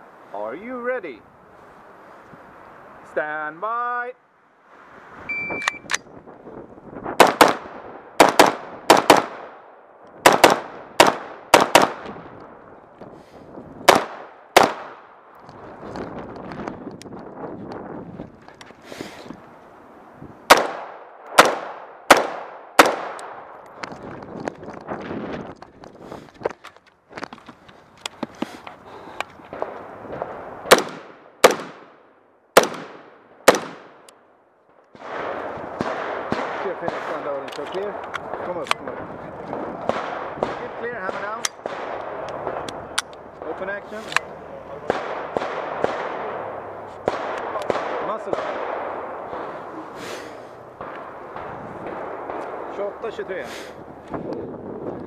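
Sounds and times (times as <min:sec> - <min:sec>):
shot timer beep: 0:05.3 - 0:05.9
rifle shots echoing: 0:07.2 - 0:12.2, 0:13.9 - 0:15.3, 0:20.5 - 0:23.6, 0:29.5 - 0:34.1, 0:34.9 - 0:43.8, 0:44.7 - 0:49.9, 0:50.8 - 0:53.2.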